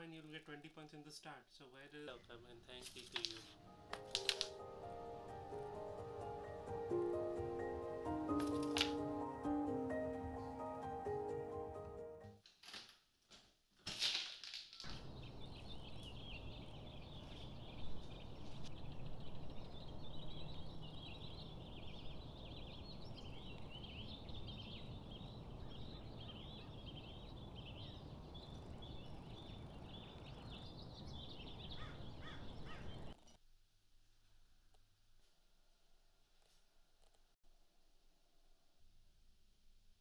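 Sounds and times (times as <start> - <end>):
small birds chirping: 14.8 - 33.4.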